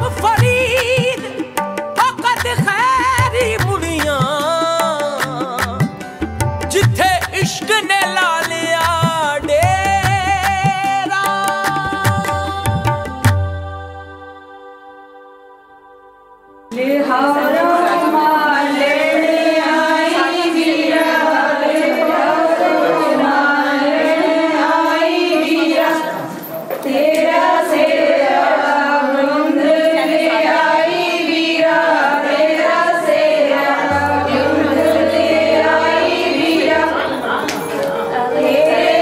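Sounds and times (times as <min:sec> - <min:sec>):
sung vocal over soft accompaniment: 0:00.0 - 0:39.0.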